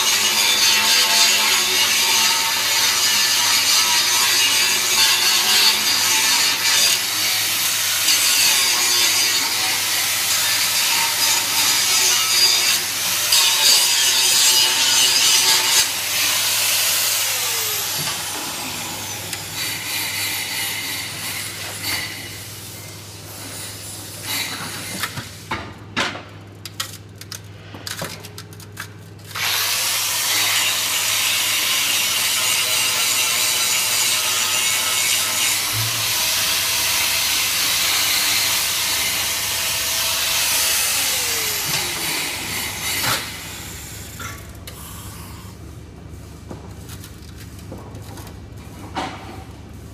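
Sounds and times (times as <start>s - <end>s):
angle grinder grinding steel: 0.0s - 22.8s, 29.4s - 45.6s.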